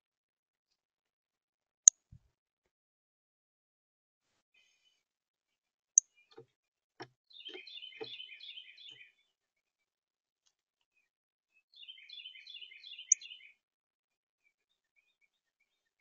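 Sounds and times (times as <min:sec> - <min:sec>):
songbird chirping: 0:06.0 - 0:09.8, 0:10.4 - 0:13.6, 0:14.4 - 0:16.0.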